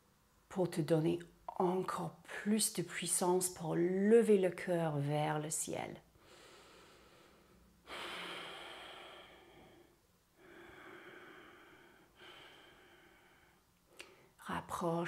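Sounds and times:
woman breathing deeply: 6.2s - 14.4s.

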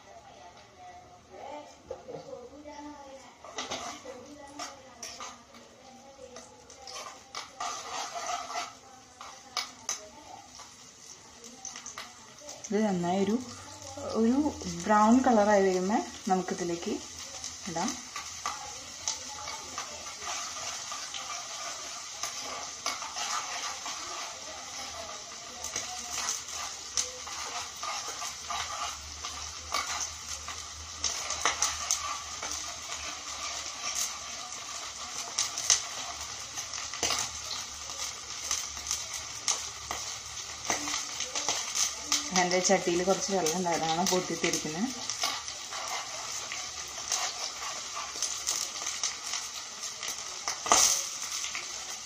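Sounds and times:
shallots sizzling in oil: 0.0s - 52.0s
metal spoon stirring: 3.4s - 10.8s, 17.3s - 37.7s, 39.4s - 51.8s.

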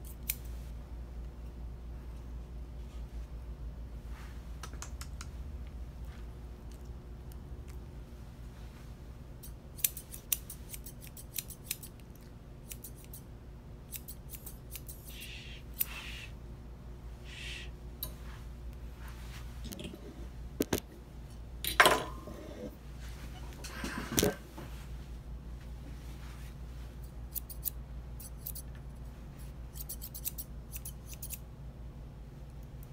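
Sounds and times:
shears snipping hair: 0.0s - 0.5s, 9.4s - 13.3s, 13.9s - 16.3s, 27.0s - 28.7s, 29.4s - 31.4s.

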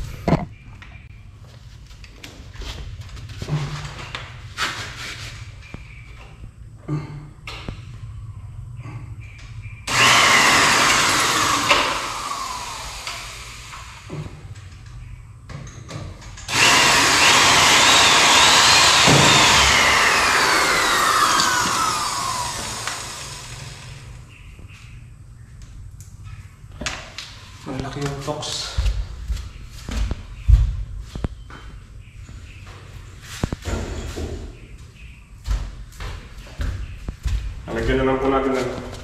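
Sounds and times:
electric drill whining: 9.9s - 14.1s, 16.5s - 24.2s.

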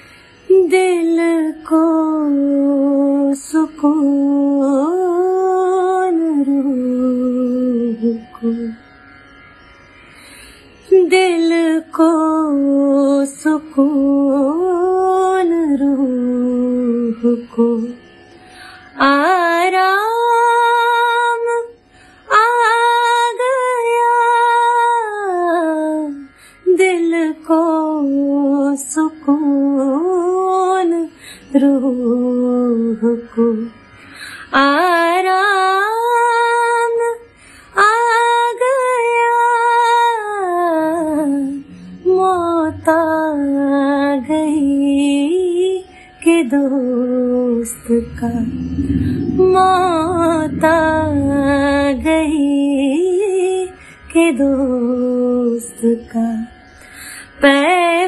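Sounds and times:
woman singing solo: 39.7s - 56.5s.

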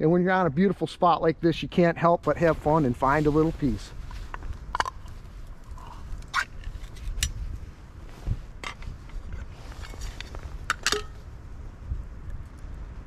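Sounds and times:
steady low rumble: 0.0s - 13.0s
lid and tin can clinking: 10.7s - 11.2s.

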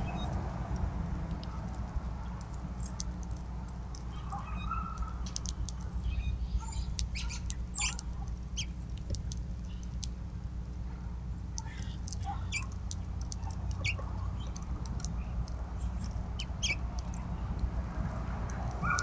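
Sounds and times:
steady low hum: 0.0s - 19.0s
finches chipping: 11.6s - 17.6s.

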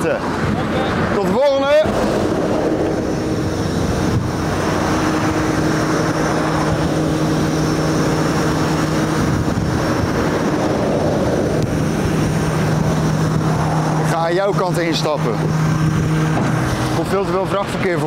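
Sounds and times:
motorway traffic noise: 0.0s - 18.0s
vehicle engine humming: 0.0s - 18.0s.

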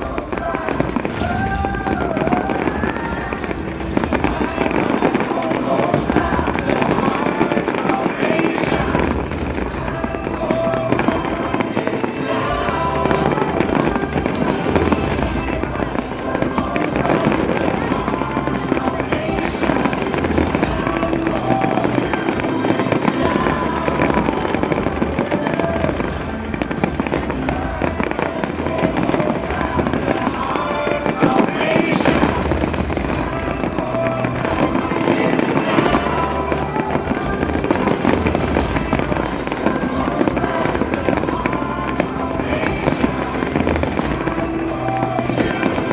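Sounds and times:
fireworks bursting and crackling: 0.0s - 45.9s
show music: 0.0s - 45.9s.

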